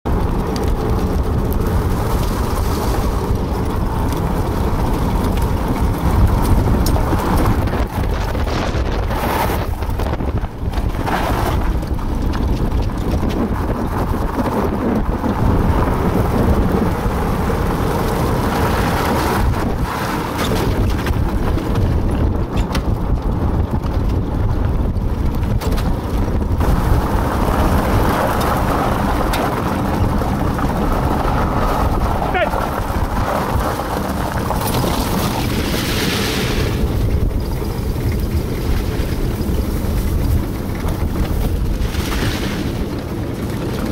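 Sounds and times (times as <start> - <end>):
wind buffeting microphone: 0.0 - 43.9
cart wheels rolling over gravel: 0.1 - 43.9.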